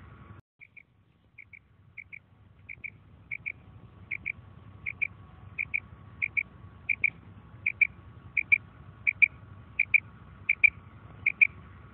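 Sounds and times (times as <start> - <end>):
quail calling: 0.6 - 11.6.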